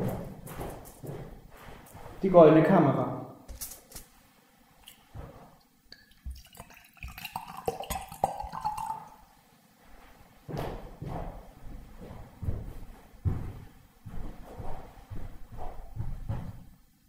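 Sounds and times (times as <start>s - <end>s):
drink pouring into a glass: 6.0s - 9.2s.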